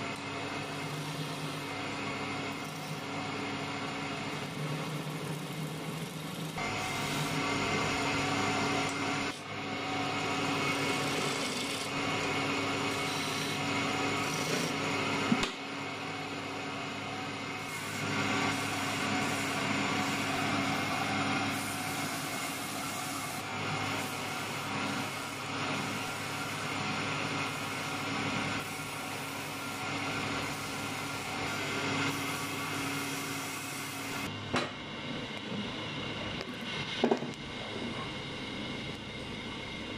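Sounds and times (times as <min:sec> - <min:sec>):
lathe motor hum: 0:00.0 - 0:34.4
tool scraping spinning wood: 0:00.2 - 0:15.3, 0:17.5 - 0:34.3.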